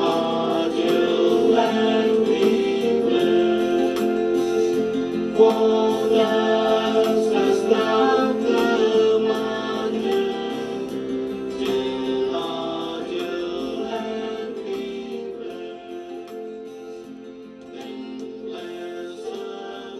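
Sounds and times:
song with singing over instruments: 0.0s - 19.9s.

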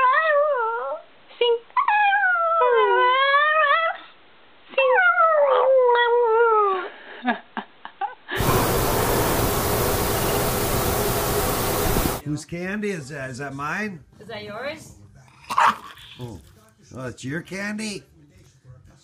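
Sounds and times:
steady hiss: 8.4s - 12.2s.

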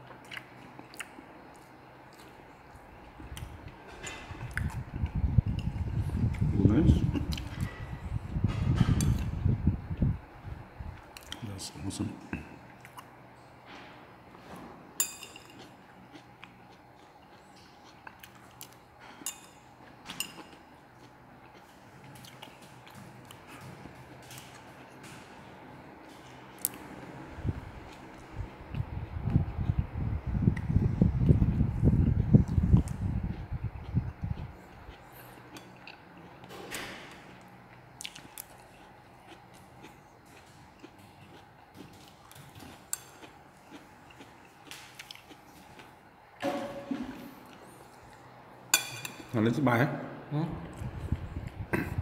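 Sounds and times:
chopsticks clinking on ceramic plate: 15.0s - 15.7s, 19.2s - 20.6s, 48.7s - 49.3s.

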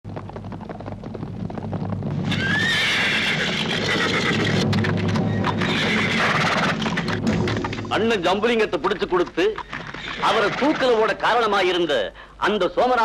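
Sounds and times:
horse hoofbeats clattering: 0.0s - 11.8s
horse whinnying: 2.2s - 7.6s, 9.6s - 11.1s.

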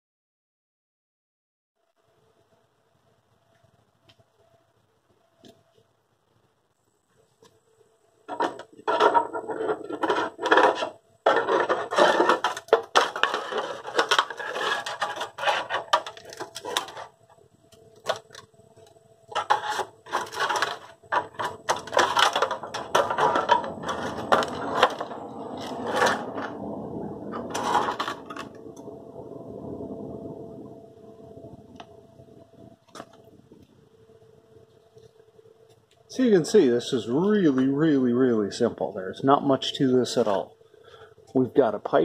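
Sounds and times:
metal scraping and clanking: 8.3s - 17.2s, 19.3s - 28.8s.

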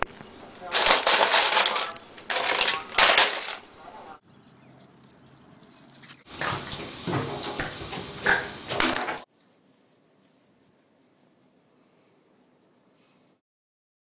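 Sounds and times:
ice cubes clattering in plastic tub: 0.7s - 3.7s.

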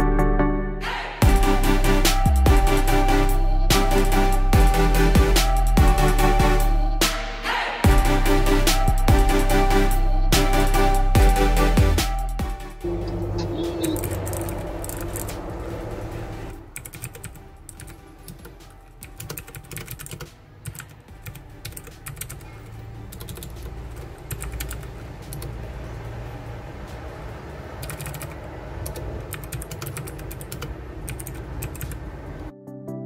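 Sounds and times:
fast typing on mechanical keyboard: 16.8s - 22.4s, 23.1s - 25.5s, 27.8s - 32.0s.

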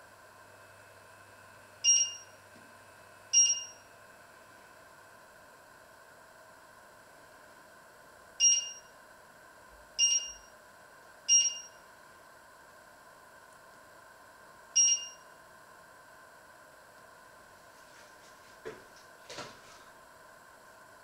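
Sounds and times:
faint steady hum: 0.0s - 21.0s
stove touch-control beeps: 1.9s - 2.3s, 3.4s - 3.8s, 8.4s - 8.9s, 10.0s - 10.5s, 11.3s - 11.8s, 14.8s - 15.2s.

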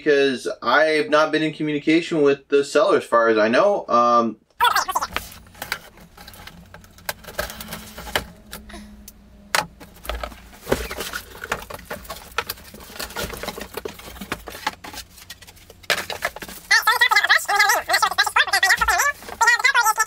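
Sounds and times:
cardboard scratching and rustling: 9.9s - 20.0s.

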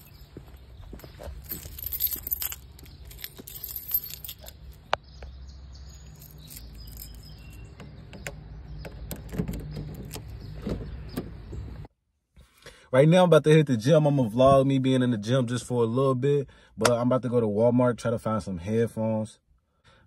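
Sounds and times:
keys jangling: 1.0s - 4.9s, 5.8s - 7.8s.

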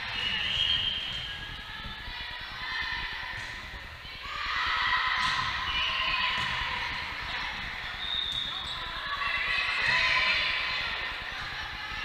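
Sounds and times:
people shouting in a hall: 2.6s - 12.0s
volleyball hits: 5.1s - 7.0s.

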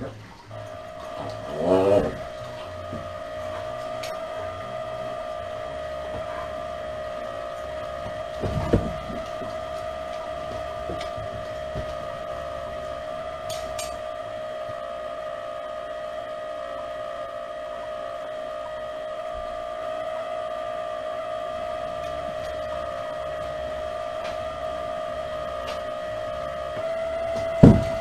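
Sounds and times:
high electrical whine: 0.0s - 28.0s
dull thump: 0.5s - 13.5s, 25.8s - 28.0s.

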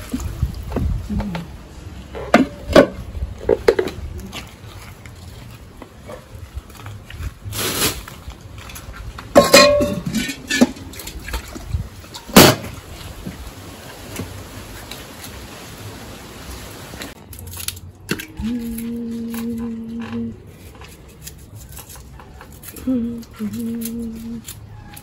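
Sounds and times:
knocks and clatters of cooking: 9.2s - 11.2s.

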